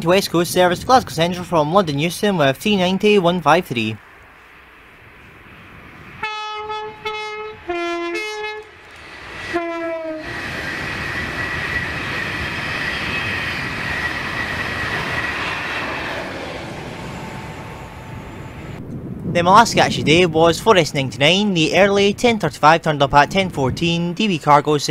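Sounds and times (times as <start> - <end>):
wheels rushing on rail: 0.0 - 21.4
high electric whine: 4.1 - 19.0
train horn blasts: 6.2 - 8.8, 9.5 - 10.4.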